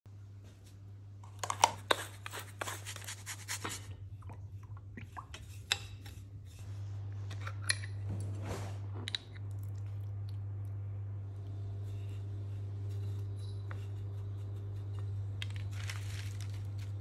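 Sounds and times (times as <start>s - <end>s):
low electrical hum: 0.1s - 17.0s
spoon stirring breadcrumbs in bowl: 13.8s - 17.0s.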